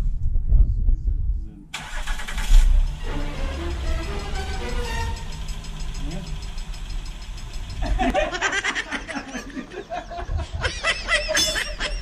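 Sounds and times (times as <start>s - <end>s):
low steady rumble: 0.0s - 12.0s
man laughing: 7.8s - 12.0s.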